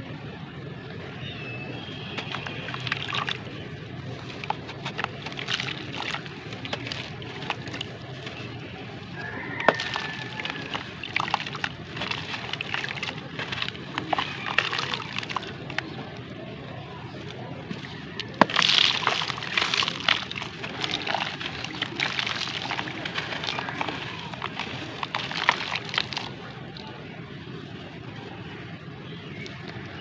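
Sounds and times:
water sloshing: 1.6s - 28.4s
gritty crumbling crunches: 1.8s - 27.0s
sand pouring into water: 4.1s - 8.4s, 9.2s - 15.9s, 17.8s - 26.5s.

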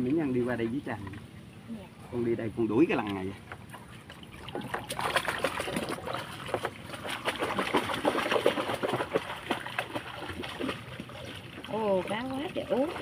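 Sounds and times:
water splashing: 2.8s - 13.0s.

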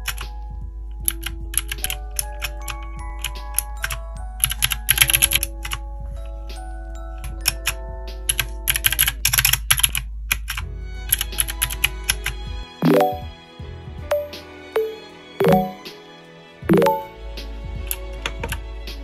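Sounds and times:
background music: 12.8s - 13.4s, 14.1s - 16.0s, 16.7s - 17.4s.

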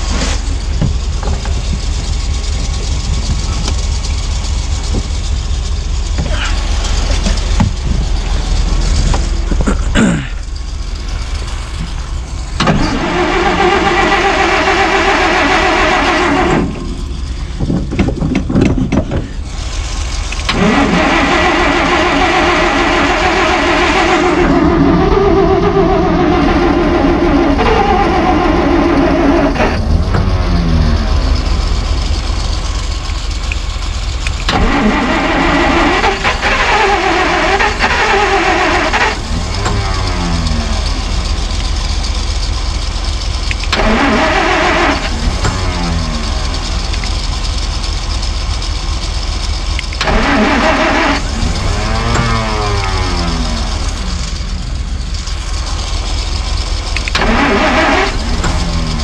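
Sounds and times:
starter cranking car engine: 0.0s - 59.0s.

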